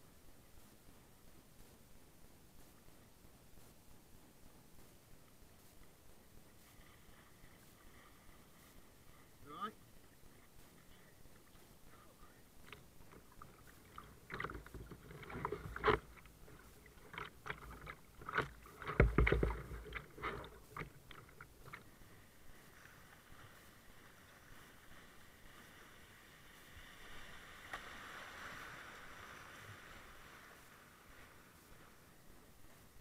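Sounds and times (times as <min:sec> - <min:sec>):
rushing water: 0:06.4 - 0:33.0
paddle splashes: 0:06.5 - 0:33.0
paddle knocking plastic hull: 0:12.6 - 0:21.8.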